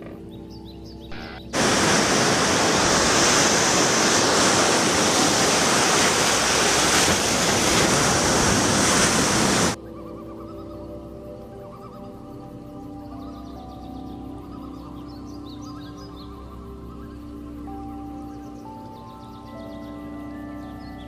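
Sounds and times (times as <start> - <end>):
ocean surf washing onto beach: 1.6 - 9.8.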